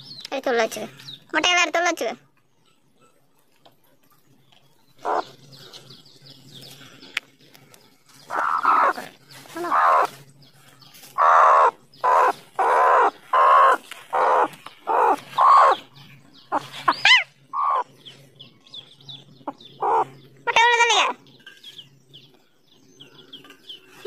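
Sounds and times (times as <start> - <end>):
hen clucking: 5.0 - 5.7, 8.2 - 10.2, 10.9 - 18.0, 19.2 - 21.3.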